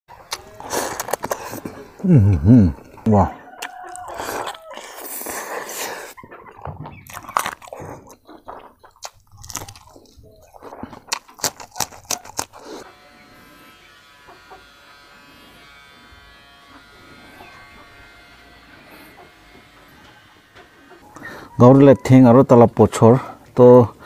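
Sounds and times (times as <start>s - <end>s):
chewing and lip-smacking: 0.2s - 2.0s, 3.6s - 12.9s
sharp mouth clicks: 7.1s - 12.8s.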